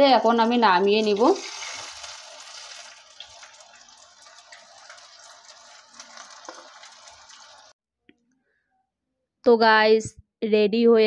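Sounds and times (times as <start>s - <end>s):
food deep-frying in oil: 0.0s - 7.8s
small oil crackles: 0.4s - 7.7s.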